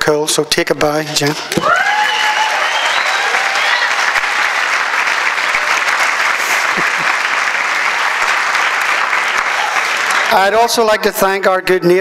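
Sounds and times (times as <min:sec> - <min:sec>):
audience cheering: 0:01.6 - 0:10.8
audience applauding: 0:01.6 - 0:11.0.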